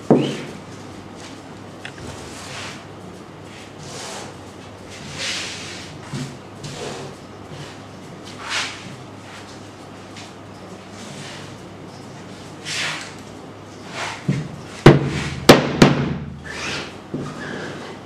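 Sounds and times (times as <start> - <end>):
soft rustling and shuffling: 0.6 - 15.3
sharp knocks on frame: 14.3 - 16.2.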